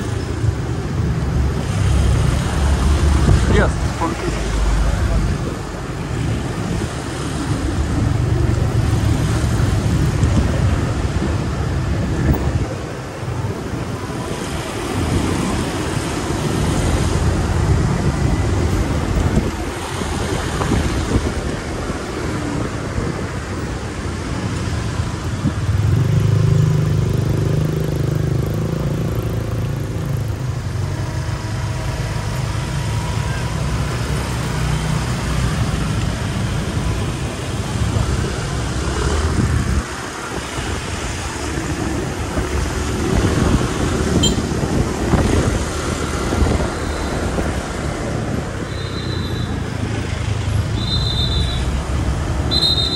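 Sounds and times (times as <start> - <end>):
road traffic: 0.0 - 52.9.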